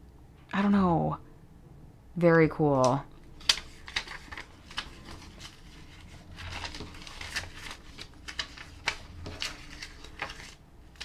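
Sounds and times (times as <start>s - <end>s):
paper rustling: 3.4s - 11.0s.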